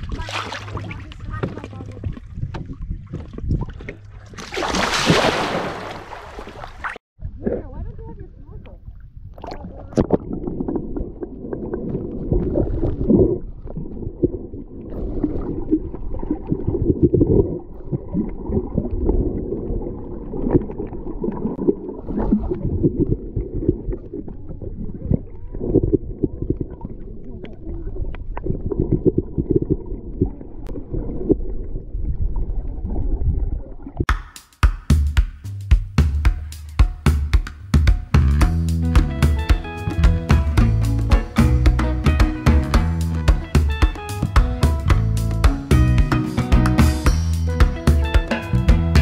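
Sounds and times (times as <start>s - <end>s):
underwater rumbling and gurgling: 0.0s - 4.7s, 6.1s - 34.1s.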